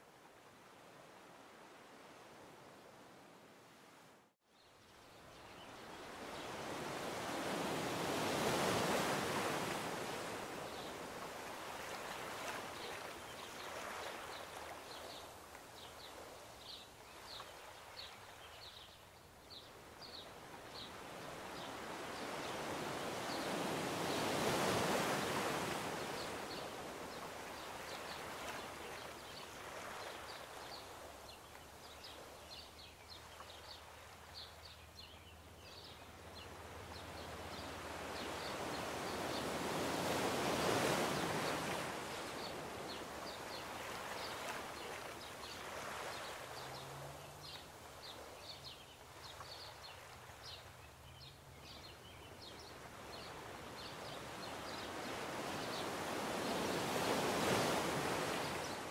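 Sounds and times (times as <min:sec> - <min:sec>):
ocean surf washing ashore: 0:05.8 - 0:16.1, 0:20.1 - 0:32.1, 0:36.2 - 0:50.5, 0:52.7 - 0:58.9.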